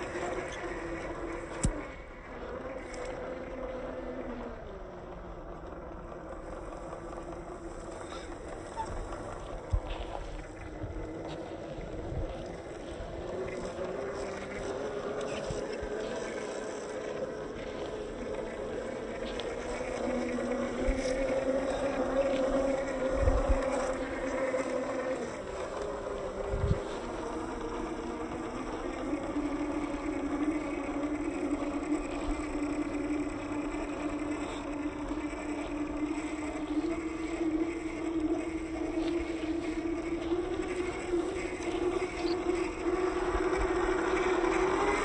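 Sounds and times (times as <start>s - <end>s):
electric motor whining: 0.0s - 45.0s.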